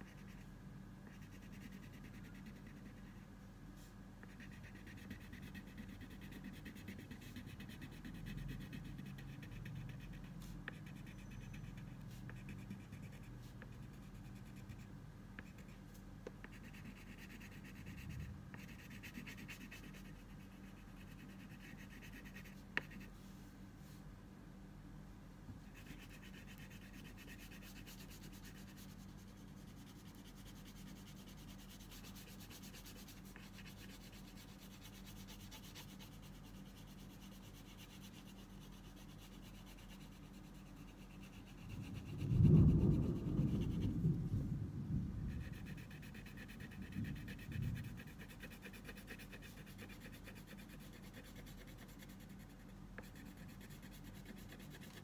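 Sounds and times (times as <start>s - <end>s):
crayon scratching on paper: 1.1s - 3.2s, 4.2s - 14.8s, 16.4s - 23.1s, 25.7s - 43.9s, 45.3s - 55.0s
loud low uneven noise: 41.9s - 45.6s.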